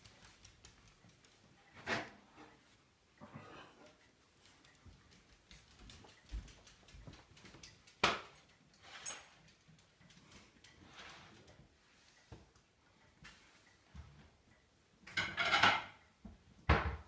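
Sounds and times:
dog claws clicking on wood floor: 0.0s - 1.7s, 4.4s - 10.8s.

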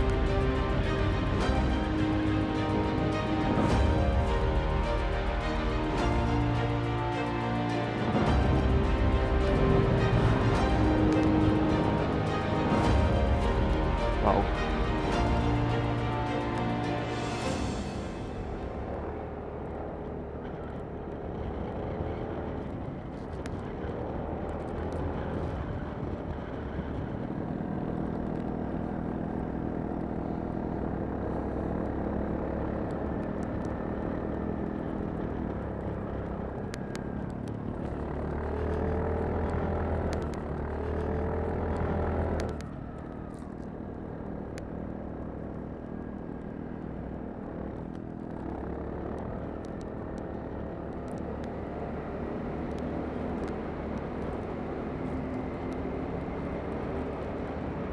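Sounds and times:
scooter engine droning: 18.2s - 57.9s.

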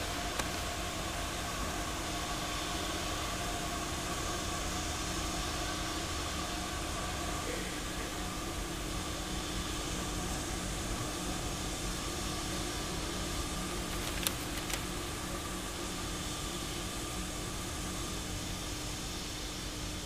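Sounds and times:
faint clicks: 13.9s - 14.9s.

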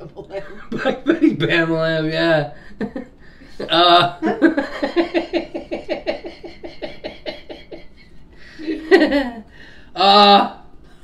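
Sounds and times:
person laughing hard: 3.6s - 9.4s.

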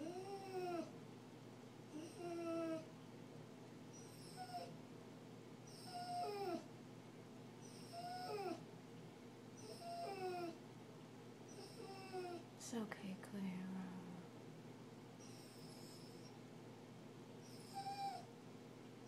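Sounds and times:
dog whining cries: 0.0s - 0.9s, 1.9s - 2.9s, 3.9s - 4.7s, 5.7s - 6.7s, 7.6s - 8.6s, 9.6s - 10.6s, 11.5s - 12.5s, 17.4s - 18.3s.

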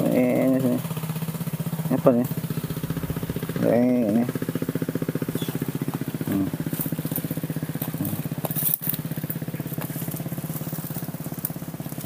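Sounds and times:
small engine running: 0.0s - 12.0s
dry leaves crackling: 4.3s - 12.0s.

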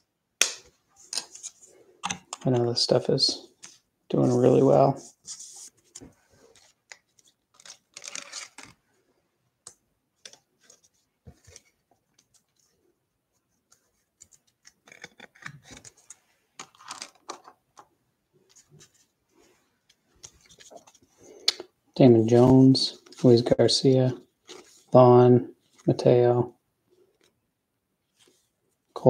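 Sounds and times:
trading cards rustling: 1.0s - 8.8s, 13.8s - 17.6s
foil wrapper crinkling: 7.5s - 8.8s.

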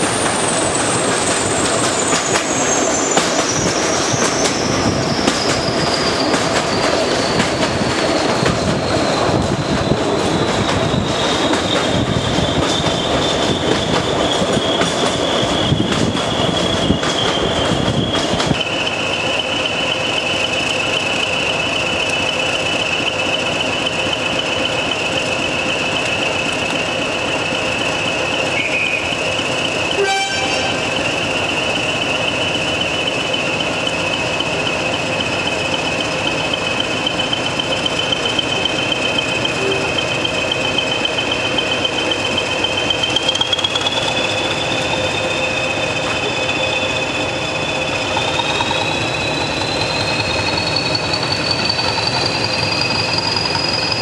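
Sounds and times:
diesel locomotive engines: 0.0s - 54.0s
turbocharger whistle: 28.5s - 29.2s, 29.9s - 31.0s
wheel noise: 32.2s - 54.0s.

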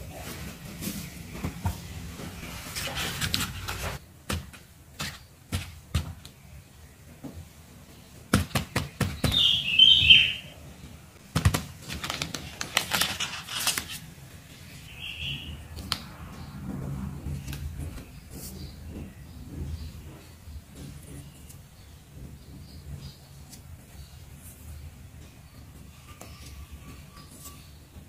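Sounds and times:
plastic sheets crinkling and tapping: 0.3s - 6.4s, 8.2s - 9.5s, 11.2s - 14.7s.

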